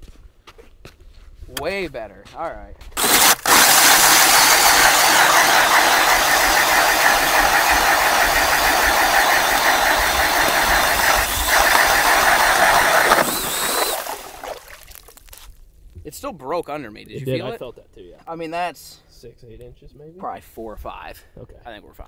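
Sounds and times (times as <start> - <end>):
power ice auger grinding: 3.0 - 14.6.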